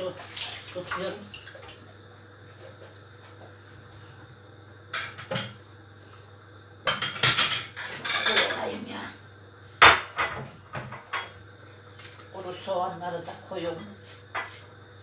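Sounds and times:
crockery clinking and clattering: 0:06.9 - 0:08.6.

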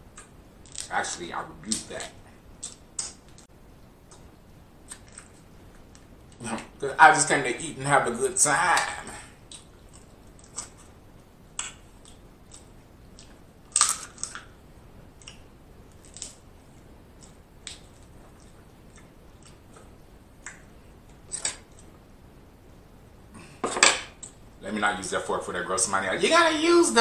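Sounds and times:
shellfish shell cracking: 0:00.2 - 0:01.0, 0:08.8 - 0:10.9, 0:11.6 - 0:14.6, 0:15.2 - 0:16.4.

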